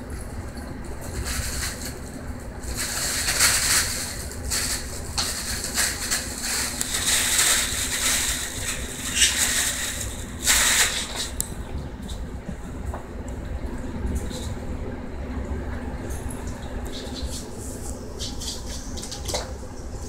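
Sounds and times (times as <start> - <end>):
nylon play tunnel rustling: 1.0 - 11.4.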